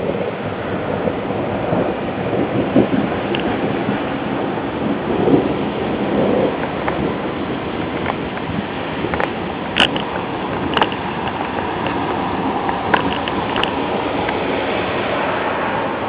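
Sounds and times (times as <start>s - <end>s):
heavy rain pouring: 0.0s - 16.0s
sharp taps of raindrops: 2.8s - 4.0s, 6.5s - 7.1s, 7.8s - 14.4s.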